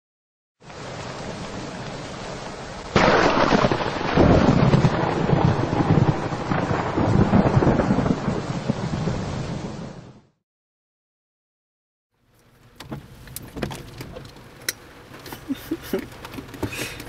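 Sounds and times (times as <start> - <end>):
steady rain hiss: 0.6 - 10.0, 12.2 - 17.0
loud rumbling thunderclap: 2.9 - 10.3.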